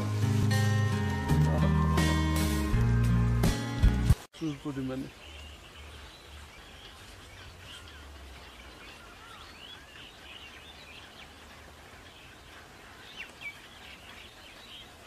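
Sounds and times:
small birds chirping: 4.1s - 15.0s.

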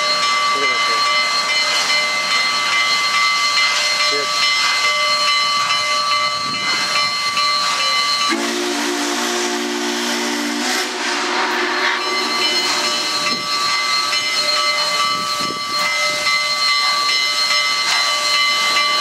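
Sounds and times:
locomotive chime whistle: 0.0s - 19.0s
steam hissing: 0.2s - 19.0s
high ringing tones: 11.4s - 19.0s.

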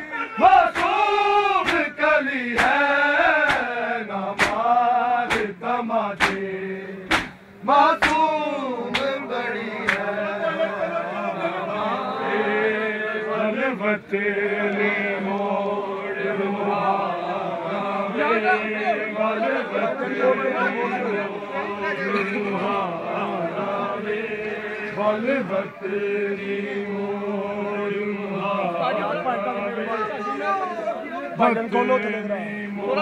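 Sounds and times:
men chanting together: 0.0s - 33.0s
collective chest slaps: 0.8s - 1.0s, 1.6s - 1.9s, 2.6s - 2.8s, 3.4s - 3.7s, 4.4s - 4.6s, 5.3s - 5.5s, 6.2s - 6.4s, 7.1s - 7.4s, 8.0s - 8.2s.

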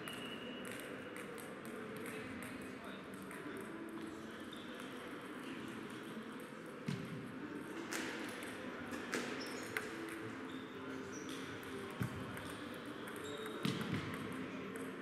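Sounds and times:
murmur of distant voices: 0.0s - 15.0s
table tennis balls clicking: 11.3s - 15.0s.

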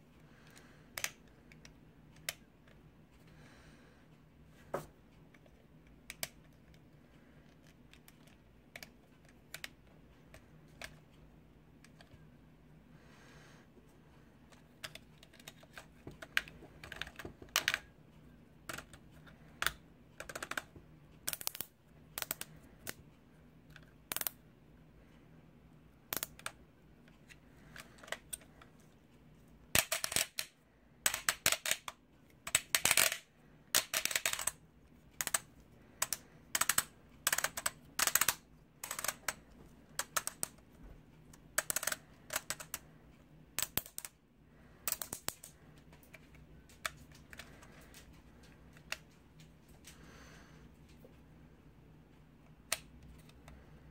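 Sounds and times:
plastic toy parts clicking: 0.4s - 2.8s, 5.3s - 6.8s, 7.4s - 11.0s, 14.5s - 17.9s, 18.6s - 23.0s, 23.7s - 24.4s, 26.1s - 26.6s, 27.2s - 28.6s, 29.7s - 34.6s, 35.2s - 40.6s, 41.5s - 42.8s, 43.6s - 44.2s, 44.8s - 49.0s, 52.7s - 53.6s.

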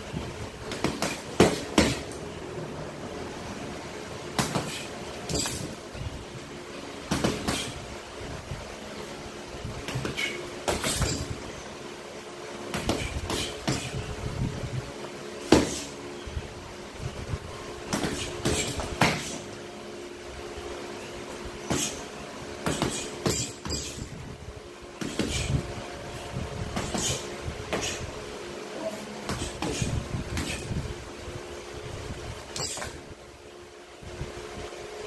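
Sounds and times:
gloved punches on punching bag: 0.7s - 2.2s, 7.1s - 7.8s, 15.5s - 15.9s, 17.9s - 19.4s, 22.6s - 24.0s, 25.0s - 25.5s.

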